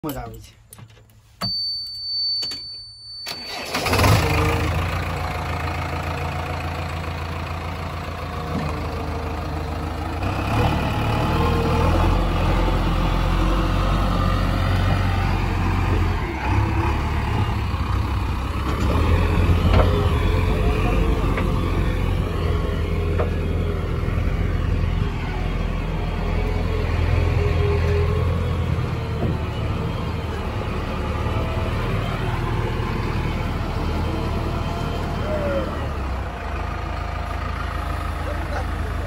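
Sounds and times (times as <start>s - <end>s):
diesel engine starting and running: 0.0s - 39.0s
high beep: 1.4s - 3.5s.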